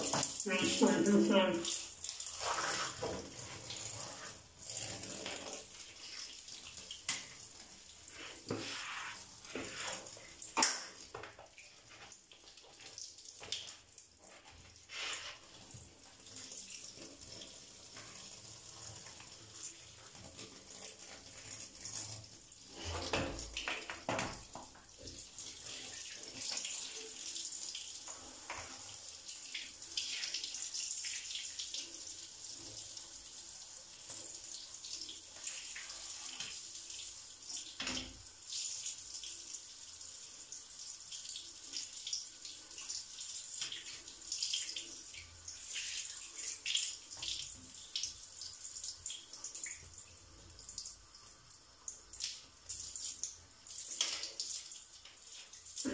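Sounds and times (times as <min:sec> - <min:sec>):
water splashing onto wet floor: 0:00.0 - 0:28.8, 0:41.1 - 0:55.9.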